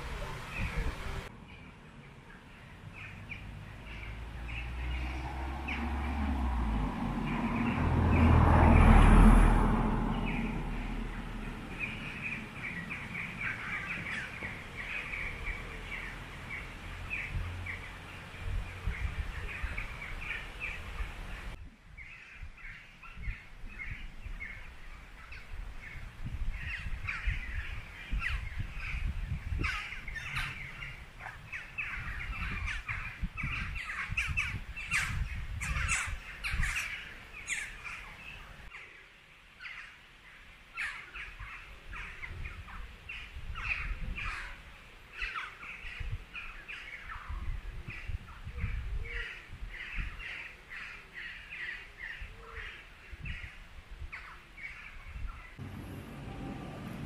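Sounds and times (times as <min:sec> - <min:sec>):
low rumble: 0:03.5 - 0:13.4, 0:55.6 - 0:57.0.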